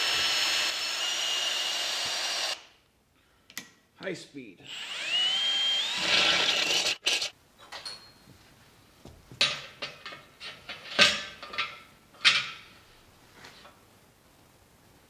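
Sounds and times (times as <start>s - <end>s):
cordless drill boring through steel: 0.0s - 2.6s, 4.7s - 7.3s
metal clinks and knocks: 7.6s - 8.3s.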